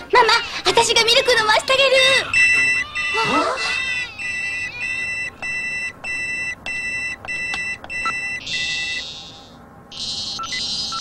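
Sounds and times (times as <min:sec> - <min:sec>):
two-pitch alarm beeping: 0:02.3 - 0:11.0
high buzzy electronic tone: 0:08.0 - 0:11.0.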